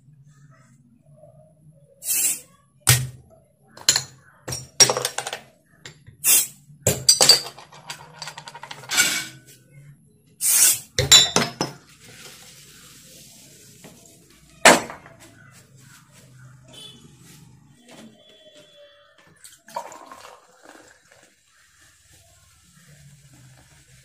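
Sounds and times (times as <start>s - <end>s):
soda fizzing: 19.4s - 24.0s.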